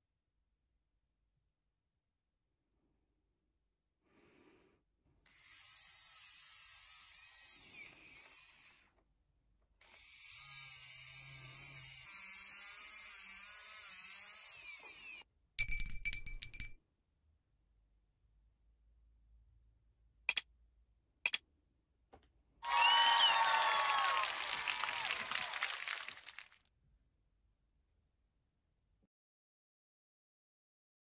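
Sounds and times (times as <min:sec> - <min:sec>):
rotary tool whining: 0:05.3 - 0:08.9, 0:09.8 - 0:15.2
metallic clinks: 0:15.6 - 0:16.8.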